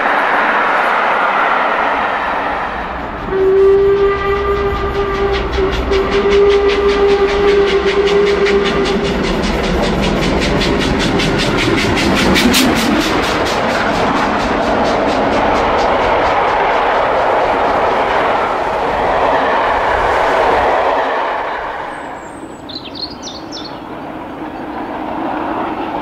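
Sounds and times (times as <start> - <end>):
steam exhaust beats: 0.0 - 26.0
steam locomotive whistle: 1.9 - 13.2, 15.8 - 23.6.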